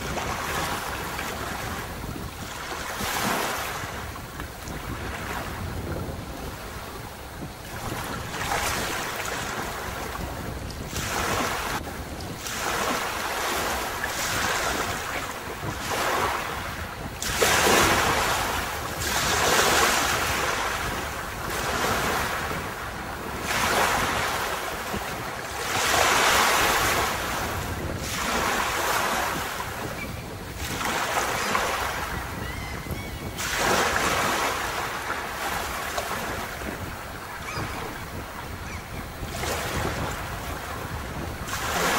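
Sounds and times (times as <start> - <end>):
low wind rumble: 0.0 - 41.9
sea waves breaking on beach: 0.0 - 41.9.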